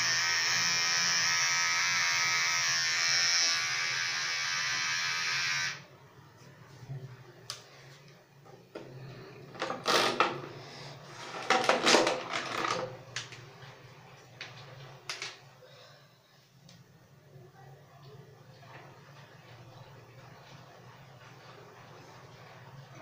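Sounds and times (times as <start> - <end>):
electric hair clipper buzz: 0.0 - 5.8
clattering rustling handling noise: 11.1 - 13.5.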